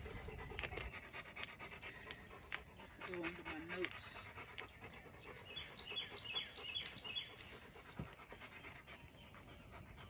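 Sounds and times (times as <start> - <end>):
dog panting: 0.0 - 10.0.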